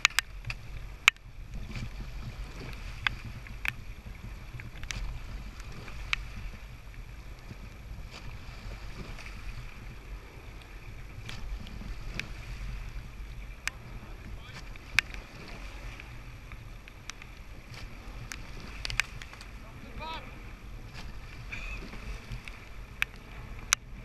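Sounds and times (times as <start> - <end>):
oars clicking in gates: 0.0 - 8.2, 8.8 - 24.0
water rushing along hull: 0.0 - 24.0
wind rumble on microphone: 0.0 - 24.0.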